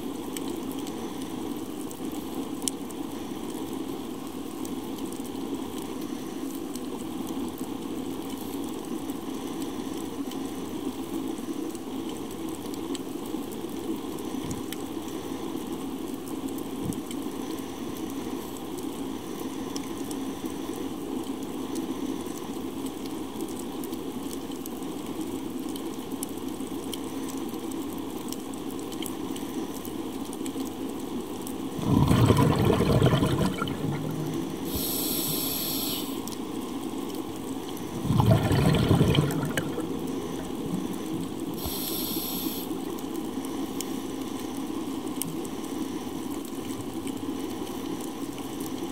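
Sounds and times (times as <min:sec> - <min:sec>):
diver exhaling bubbles: 0:31.7 - 0:35.5, 0:37.8 - 0:41.9
underwater rushing hiss: 0:31.8 - 0:36.3, 0:37.8 - 0:42.8.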